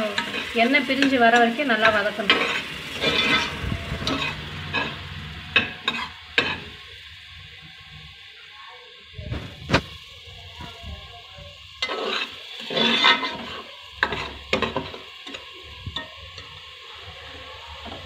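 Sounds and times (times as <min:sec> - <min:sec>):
low sizzle: 0:00.0 - 0:18.0
ladle scraping metal pot: 0:02.3 - 0:06.7, 0:11.8 - 0:14.4.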